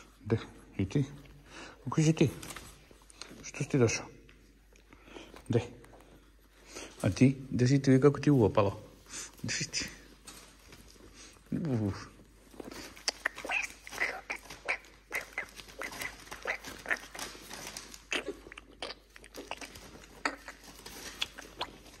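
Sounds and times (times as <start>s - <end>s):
puppies chewing with clicks and smacks: 10.0s - 22.0s.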